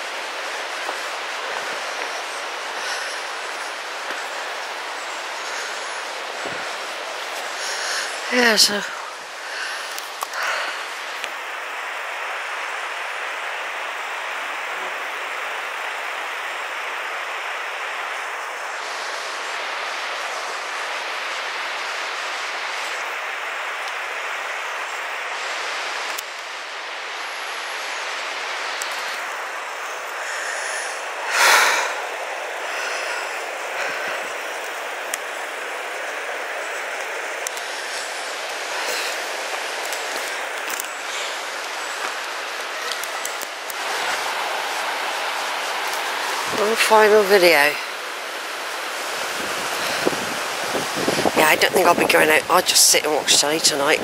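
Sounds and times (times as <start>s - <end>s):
fast-flowing river rushing: 26.9s - 54.0s.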